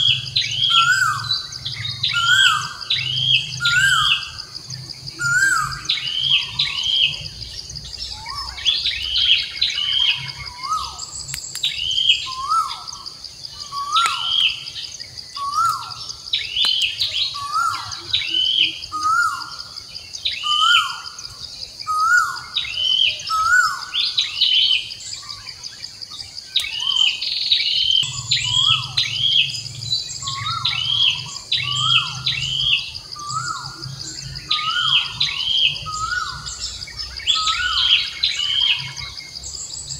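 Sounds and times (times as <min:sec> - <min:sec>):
bird chirping: 0:00.0 - 0:39.9
high insect drone: 0:00.0 - 0:39.9.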